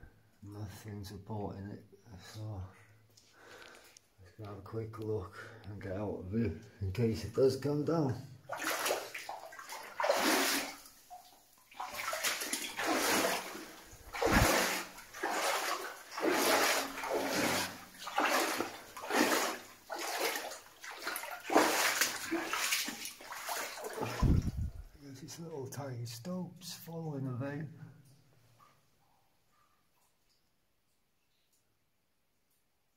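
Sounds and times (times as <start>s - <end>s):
footsteps splashing through water: 8.5s - 24.9s.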